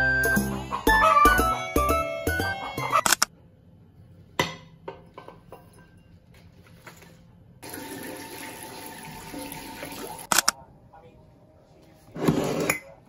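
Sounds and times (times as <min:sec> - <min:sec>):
water running into sink: 0:07.6 - 0:10.3.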